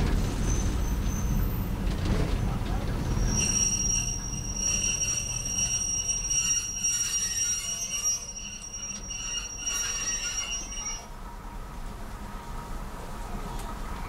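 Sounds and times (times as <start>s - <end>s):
train wheels squealing on rails: 0.0s - 11.2s
low train running rumble: 0.0s - 14.0s.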